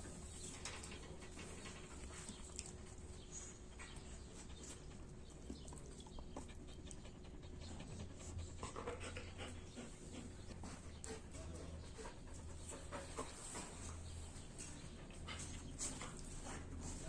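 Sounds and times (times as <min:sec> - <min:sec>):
dog panting softly: 0:00.0 - 0:17.0
dog licking lips: 0:05.3 - 0:07.0.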